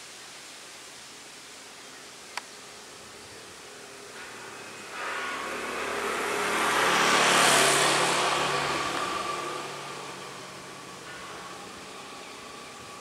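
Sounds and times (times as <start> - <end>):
steady hiss: 0.0 - 13.0
engine: 2.2 - 13.0.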